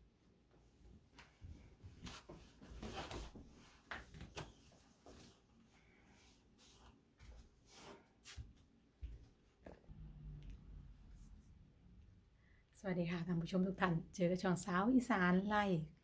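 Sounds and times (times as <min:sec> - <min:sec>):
cloth sheet rustling: 0:01.2 - 0:08.6
light footsteps: 0:06.6 - 0:09.9.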